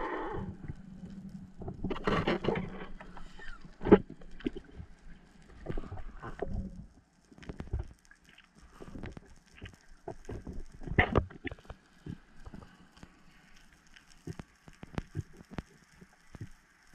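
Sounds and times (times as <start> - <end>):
muffled underwater knocks and clicks: 1.6 - 12.7, 14.2 - 16.6.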